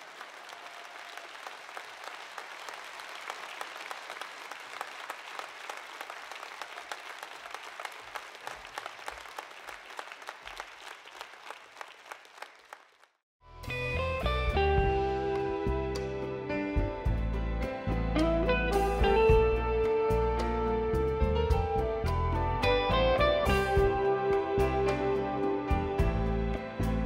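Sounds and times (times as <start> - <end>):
audience applauding: 0.0 - 13.2
music: 13.4 - 27.0.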